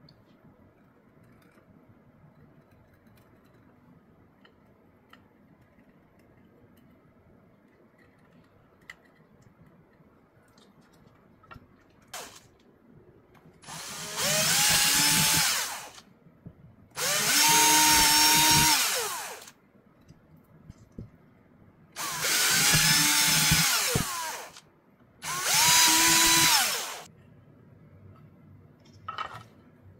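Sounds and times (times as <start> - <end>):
cordless drill whining: 12.2 - 12.4, 13.6 - 16.0, 17.0 - 19.5, 22.0 - 24.6, 25.2 - 27.1.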